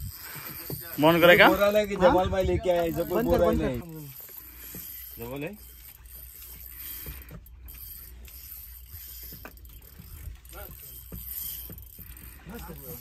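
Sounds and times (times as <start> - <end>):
fishing reel cranking: 0.0 - 13.0
short reel clicks: 2.7 - 13.0.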